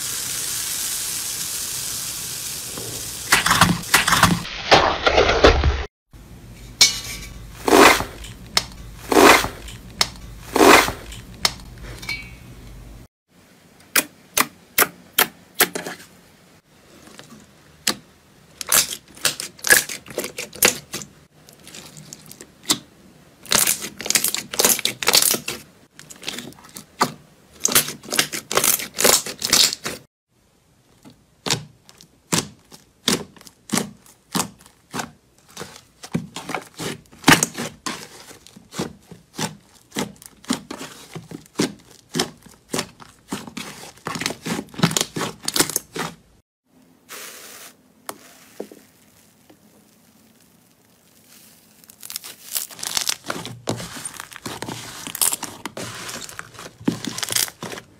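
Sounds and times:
slime crackling and popping: 48.8s - 57.9s.

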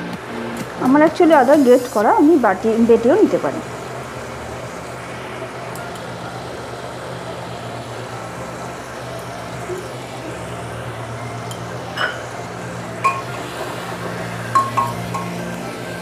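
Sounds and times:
stovetop kitchen hum: 0.0s - 16.0s
utensil clinking on metal pot: 12.0s - 12.2s, 13.0s - 13.4s.

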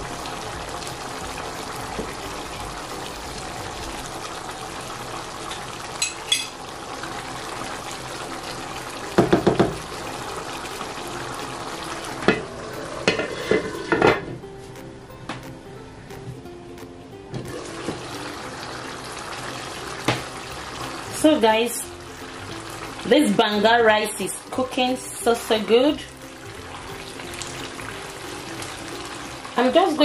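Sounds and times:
pot simmering and bubbling: 0.0s - 14.4s, 17.4s - 30.0s
glass lid clattering on pot: 12.2s - 14.3s.

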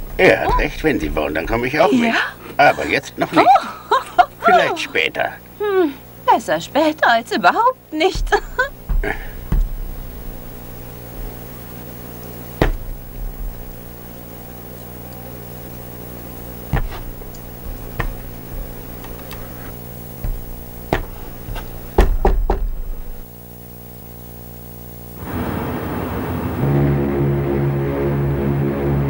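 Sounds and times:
knuckles knocking on wooden door: 0.0s - 1.7s, 8.1s - 11.5s, 12.6s - 14.2s, 16.6s - 23.2s
steady low hum: 0.0s - 29.0s.

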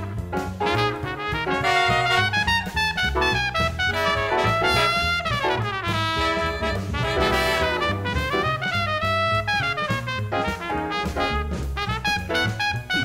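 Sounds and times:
piano bass and drums: 0.0s - 13.0s
trumpet and trombone lines: 0.0s - 13.0s
saxophones: 0.8s - 9.6s, 12.1s - 13.0s.

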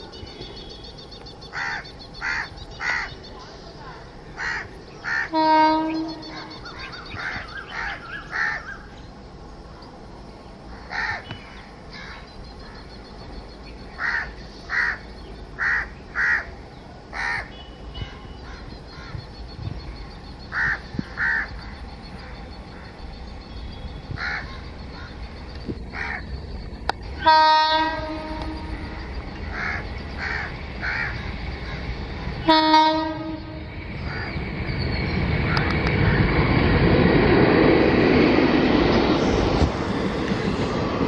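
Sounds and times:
train rumble: 0.0s - 41.0s
crows cawing: 1.5s - 3.1s, 4.4s - 5.4s, 6.4s - 8.9s, 10.9s - 11.3s, 14.0s - 15.0s, 15.6s - 16.5s, 17.2s - 17.5s, 20.5s - 21.5s, 24.2s - 25.1s, 25.9s - 26.3s, 29.5s - 31.9s, 34.1s - 34.4s
locomotive air horn blast: 5.3s - 6.3s, 27.2s - 28.9s, 32.4s - 33.7s.

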